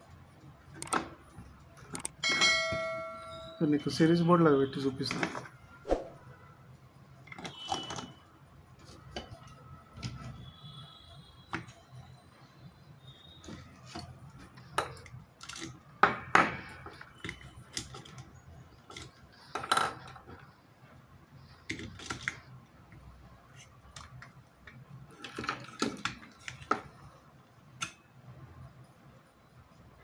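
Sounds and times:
plastic parts clicking and tapping: 0.7 - 2.2, 13.4 - 20.5, 21.5 - 27.0.

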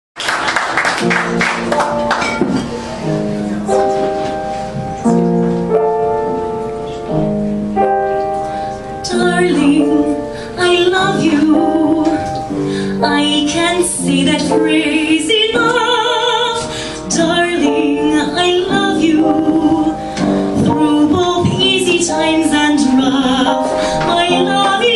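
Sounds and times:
piano chords: 0.2 - 24.9
woman singing with vibrato: 9.0 - 20.0, 20.6 - 24.9.

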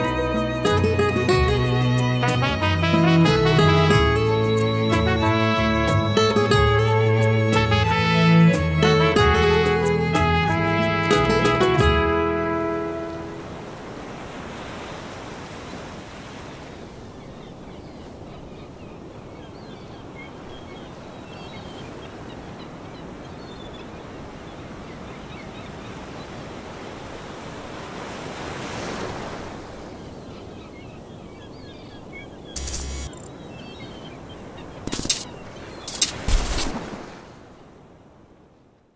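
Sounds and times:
sea waves washing: 12.2 - 17.1, 26.4 - 30.0, 34.2 - 38.3.

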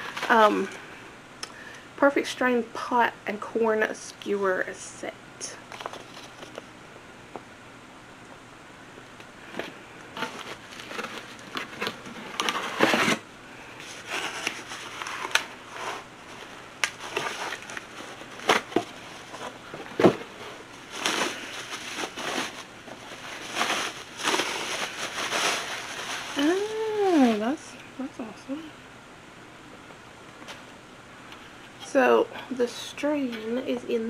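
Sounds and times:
packaging crinkling and rustling: 5.7 - 6.7, 9.5 - 13.2, 13.8 - 27.4.

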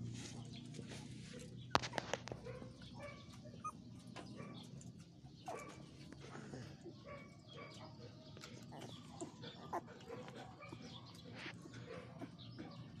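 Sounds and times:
puppies whimpering and squeaking: 1.7 - 4.5, 5.5 - 13.0.

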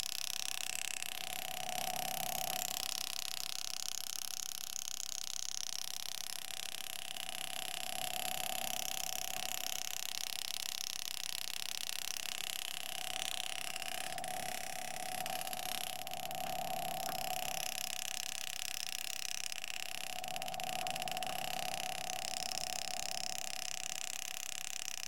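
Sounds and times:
engraving handpiece humming: 6.6 - 25.0
constant hiss: 11.5 - 24.6.

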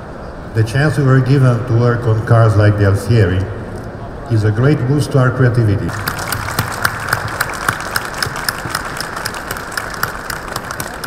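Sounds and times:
audience applauding: 5.9 - 11.0.

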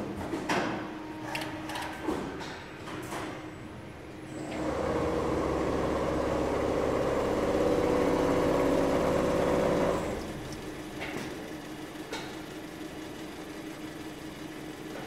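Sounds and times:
quilting machine running: 4.4 - 15.0.

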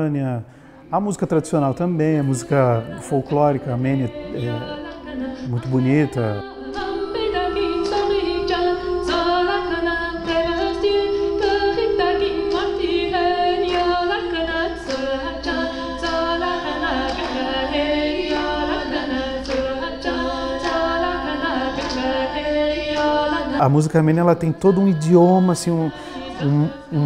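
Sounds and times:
choir singing unaccompanied: 0.8 - 27.0.

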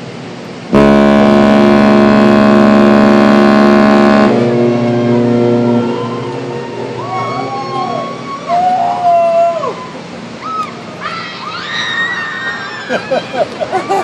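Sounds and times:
ship's horn blast: 0.6 - 8.7.

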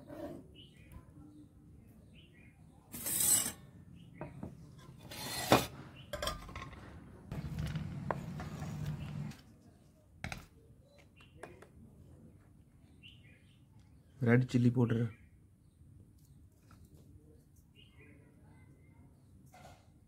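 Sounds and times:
food scraping off chopping board: 4.8 - 5.8, 7.3 - 9.4
dishes clinking on table: 5.5 - 6.9
faint bird chirps: 15.0 - 19.6.

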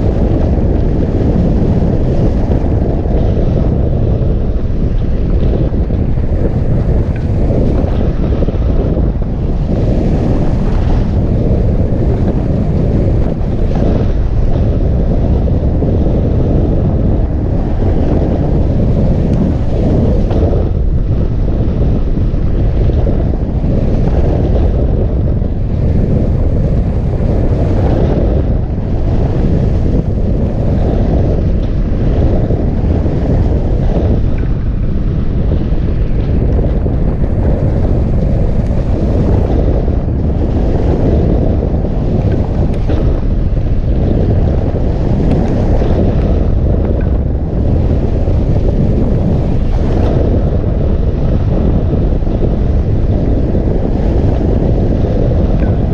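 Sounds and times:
wind rumble on microphone: 0.0 - 55.9.

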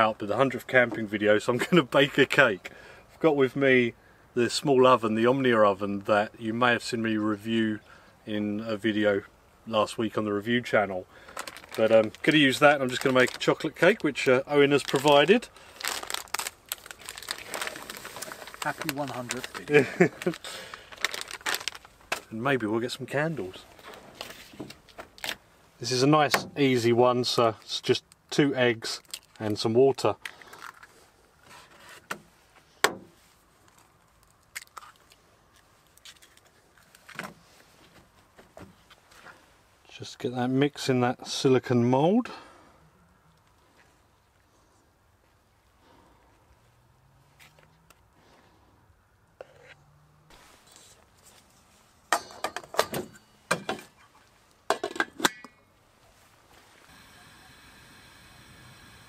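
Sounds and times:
faint steady hiss: 21.8 - 34.1, 50.3 - 59.0.

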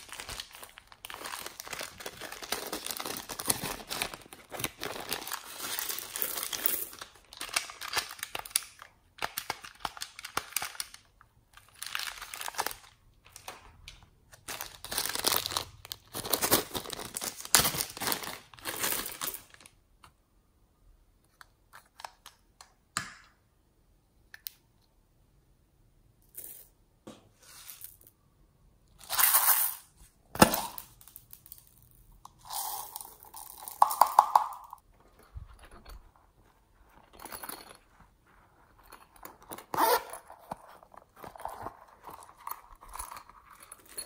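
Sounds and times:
plastic packaging crinkling: 0.0 - 19.8
small plastic pieces dropping: 32.9 - 34.8
zipper pulled open: 39.7 - 40.4.

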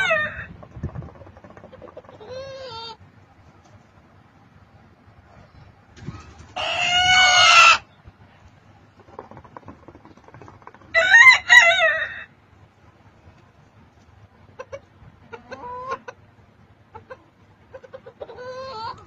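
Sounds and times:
hen clucking: 0.0 - 3.0, 8.9 - 12.3, 14.2 - 19.0
rooster crowing: 10.9 - 12.3.

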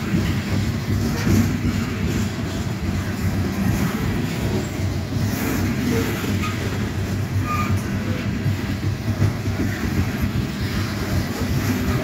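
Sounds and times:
steel wheels rumbling on rail: 0.0 - 12.0
high wheel squeals: 5.9 - 8.2.

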